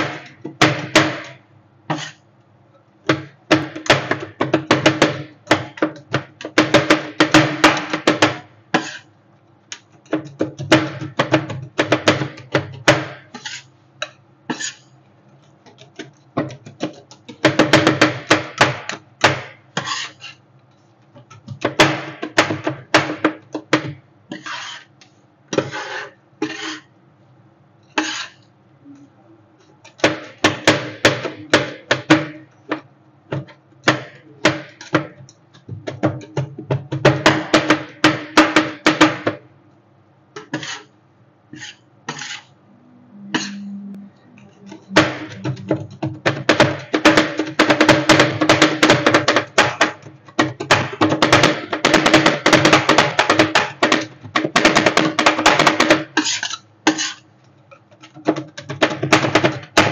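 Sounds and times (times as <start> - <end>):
steady low hum: 41.0 - 46.9.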